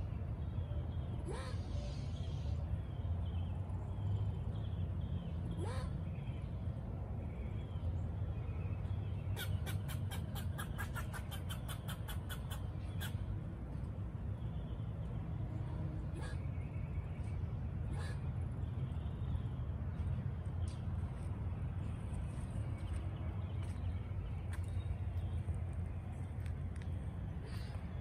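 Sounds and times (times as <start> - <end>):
low outdoor rumble: 0.0 - 28.0
squirrel alarm chatter: 9.3 - 13.3.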